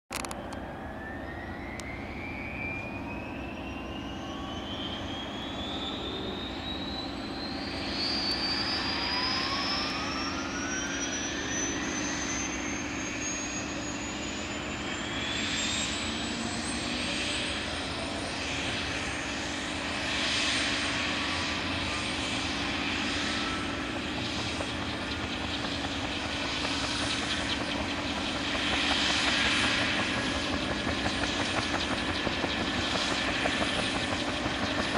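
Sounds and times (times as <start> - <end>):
helicopter turbine engine starting: 0.1 - 34.9.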